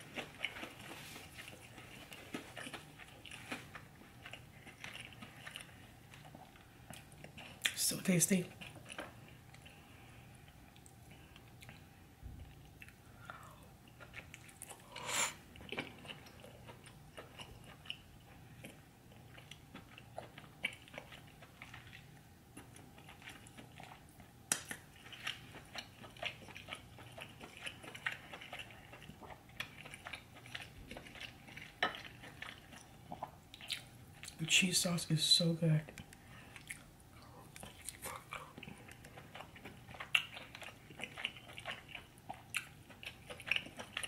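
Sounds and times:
close chewing and biting: 0.0 - 7.8, 8.4 - 34.4, 35.9 - 44.0.

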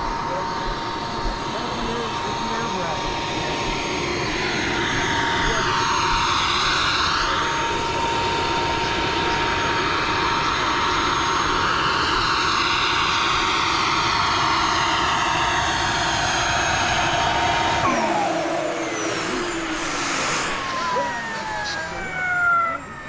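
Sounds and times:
model jet turbine whine: 0.0 - 23.0.

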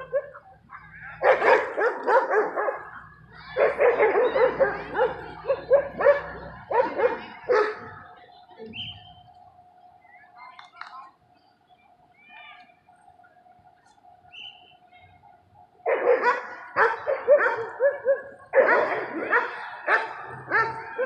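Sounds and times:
dog barking and yipping: 0.0 - 0.4, 1.0 - 7.9, 15.9 - 21.0.

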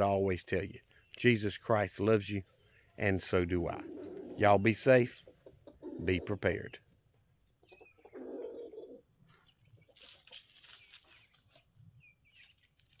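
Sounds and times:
wings fluttering: 9.9 - 11.6, 12.4 - 13.0.

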